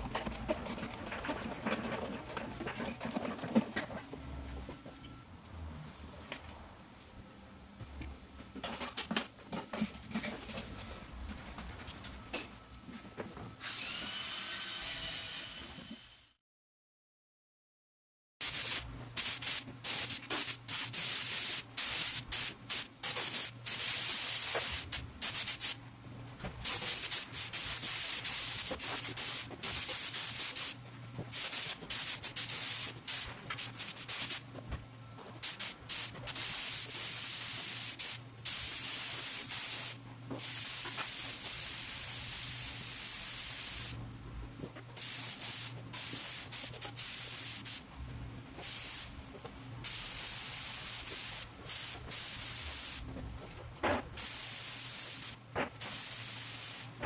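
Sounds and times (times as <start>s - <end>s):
paint sprayer hissing: 18.4s - 25.8s, 26.6s - 34.4s, 35.4s - 44.0s, 45.0s - 47.9s, 48.6s - 49.2s, 49.8s - 53.1s, 54.2s - 57.0s.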